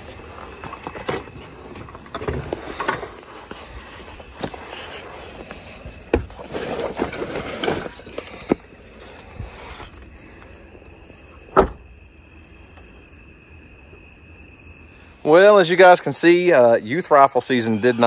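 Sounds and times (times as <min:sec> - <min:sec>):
rustling: 0:00.0 - 0:10.6
crickets chirping: 0:00.0 - 0:18.0.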